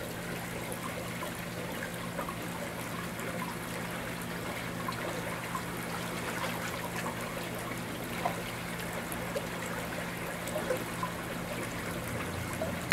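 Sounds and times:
water trickling and bubbling: 0:00.0 - 0:12.9.

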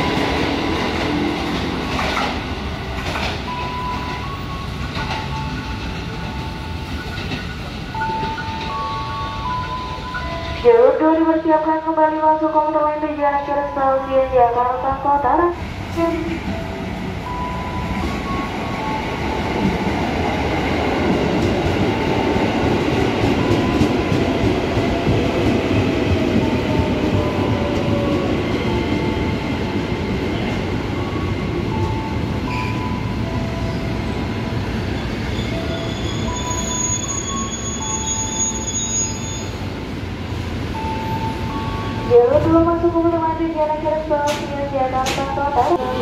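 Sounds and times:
train wheel rumble and clatter: 0:00.0 - 0:10.6, 0:15.7 - 0:36.9, 0:44.1 - 0:46.0
wheel and brake squeals: 0:32.5 - 0:33.0, 0:34.8 - 0:39.8.

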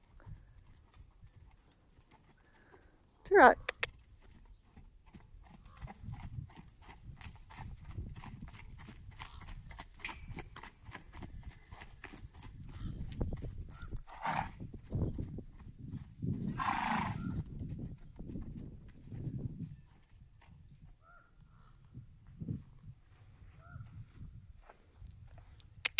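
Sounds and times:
horse hoofbeats on sand: 0:04.0 - 0:21.1.

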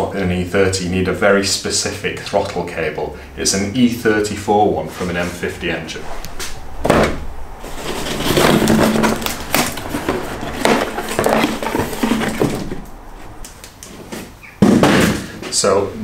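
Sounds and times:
cardboard scraping and crinkling: 0:04.9 - 0:14.4.

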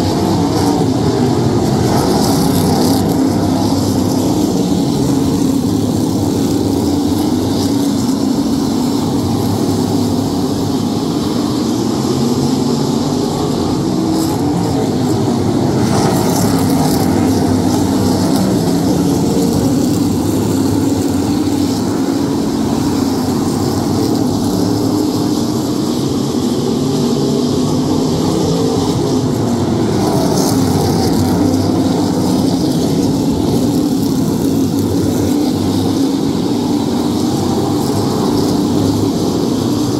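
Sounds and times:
race car engines passing: 0:00.0 - 0:39.9.

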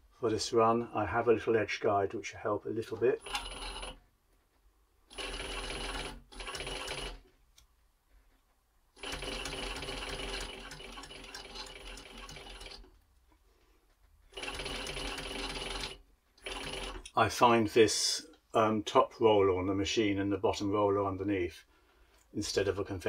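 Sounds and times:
sewing machine stitching leather: 0:03.2 - 0:04.0, 0:05.1 - 0:07.3, 0:09.0 - 0:13.0, 0:14.3 - 0:17.0.

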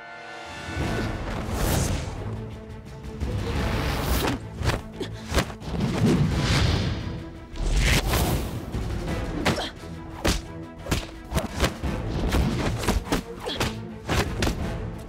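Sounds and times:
background music: 0:00.0 - 0:15.0
punches thudding: 0:09.4 - 0:14.6.

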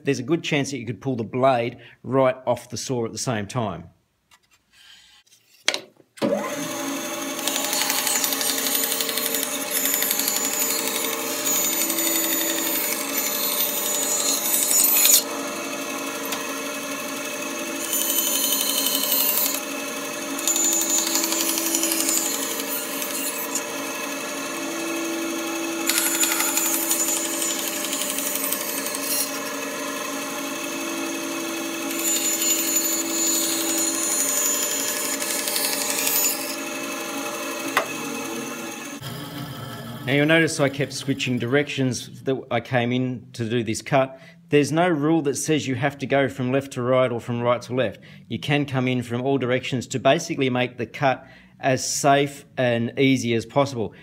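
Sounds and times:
saw blade cutting wood: 0:04.8 - 0:41.6
bandsaw motor hum: 0:06.2 - 0:41.4.

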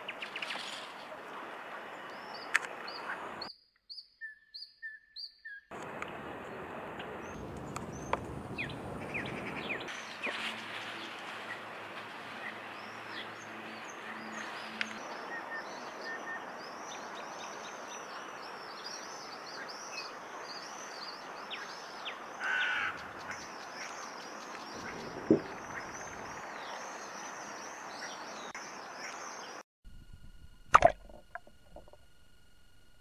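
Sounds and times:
small birds chirping: 0:07.0 - 0:29.6.

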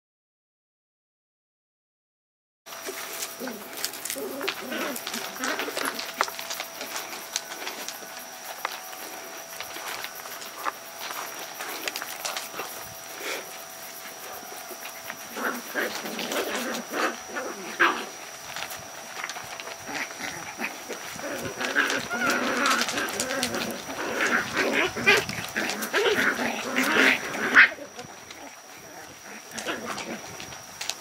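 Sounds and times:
puppies yipping and whimpering: 0:02.9 - 0:30.9.

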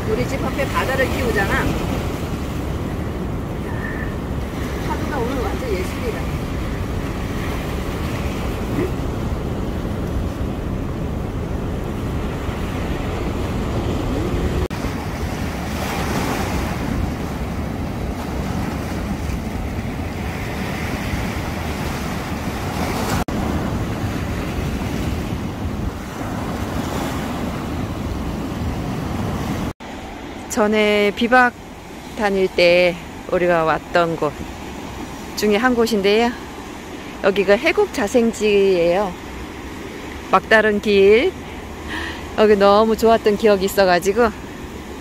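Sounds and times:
wind buffeting microphone: 0:00.0 - 0:29.7
sea surf breaking on shore: 0:00.0 - 0:45.0.

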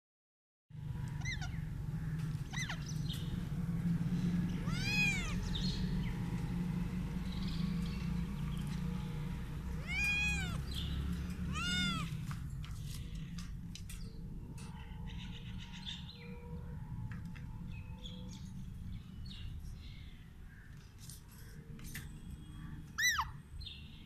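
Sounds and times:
cat meowing: 0:04.6 - 0:05.4, 0:09.8 - 0:10.6, 0:11.5 - 0:12.2.

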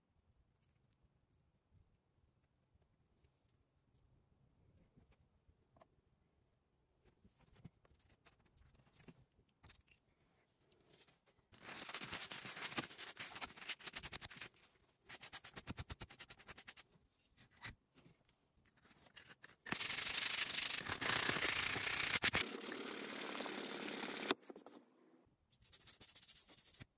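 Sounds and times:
sanding wood: 0:19.8 - 0:24.7.

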